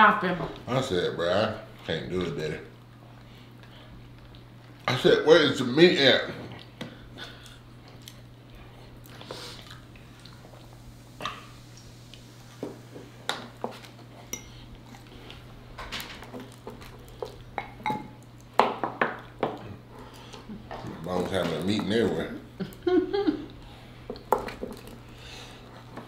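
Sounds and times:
steady low hum: 0.0 - 26.0
wet chewing: 6.4 - 12.6.

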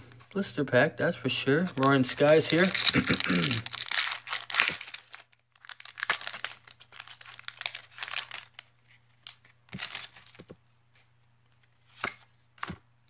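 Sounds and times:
foil wrapper crinkling and tearing: 1.7 - 10.4
cards rustling and clicking: 1.7 - 12.8.

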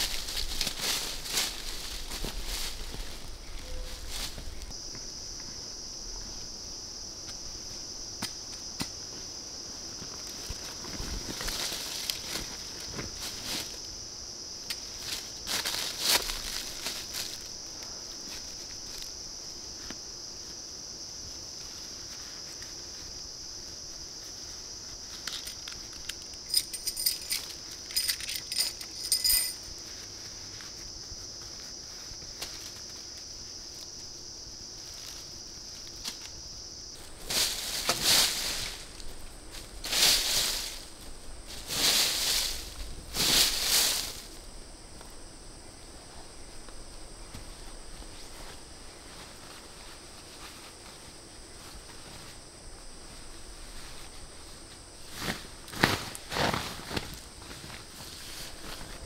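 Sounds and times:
rustles in dry leaf litter: 0.0 - 4.8, 9.7 - 14.1, 14.8 - 25.2, 29.6 - 44.6, 47.6 - 59.0
forest insects droning: 0.0 - 59.0
higher insect tone: 0.0 - 59.0
light clinks: 26.4 - 29.6.

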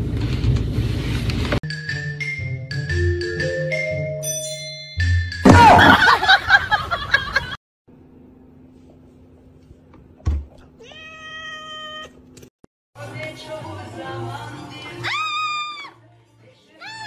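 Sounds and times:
cat meowing: 10.8 - 12.2.

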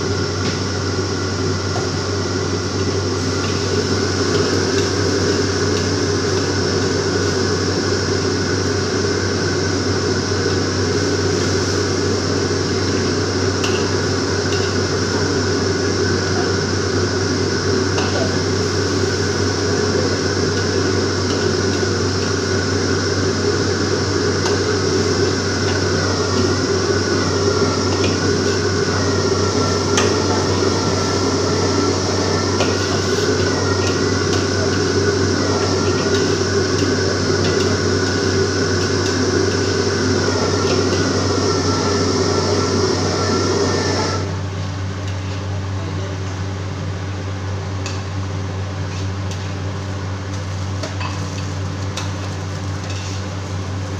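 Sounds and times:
gas burner roaring: 0.0 - 53.9
food sizzling: 2.0 - 9.4, 10.3 - 44.3
metal spatula scraping wok: 52.8 - 53.3.

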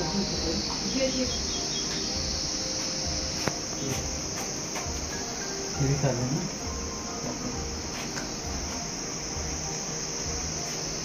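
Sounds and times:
insects shrilling: 0.0 - 11.0.

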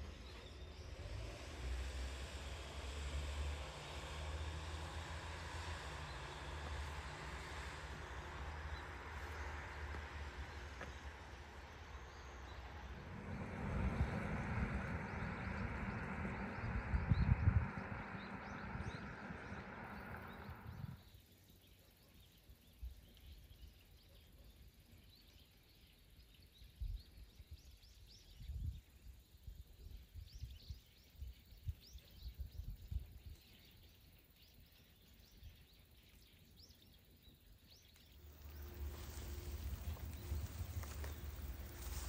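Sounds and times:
steady rushing noise: 4.1 - 21.0, 38.2 - 42.0.

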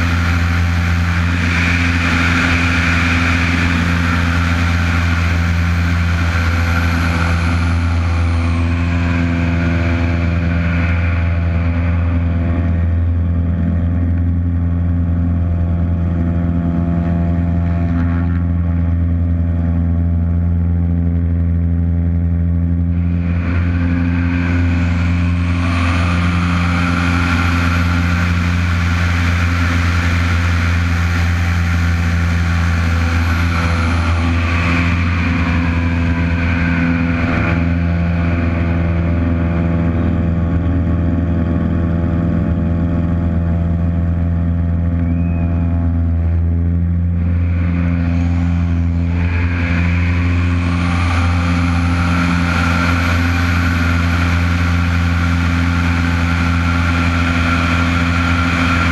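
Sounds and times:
wind rushing over microphone: 0.0 - 20.2, 22.8 - 58.9
propeller plane engine at high power: 0.0 - 58.9
faint high whistle falling in pitch: 45.0 - 45.9.

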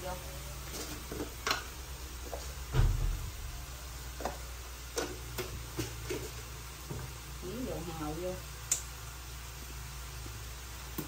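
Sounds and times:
filling sizzling in a wok: 0.0 - 11.0
dull thump: 2.7 - 3.4.

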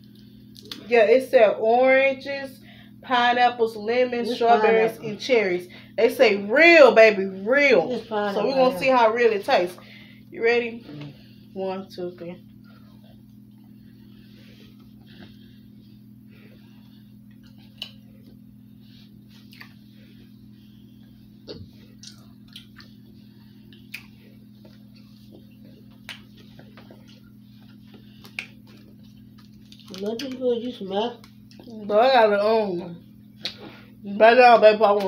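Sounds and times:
chewing and mouth sounds: 0.0 - 0.9, 17.2 - 18.5, 19.3 - 19.9, 21.4 - 31.8
low hum: 0.0 - 34.1.

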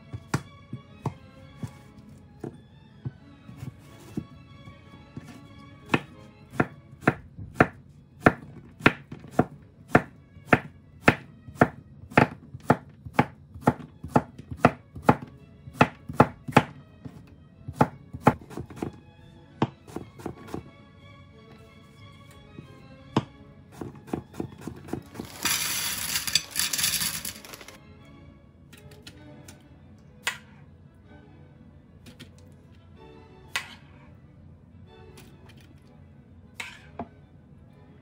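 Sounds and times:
knife chopping on wooden board: 5.2 - 16.8, 17.7 - 19.0, 19.6 - 20.6, 23.2 - 25.2.

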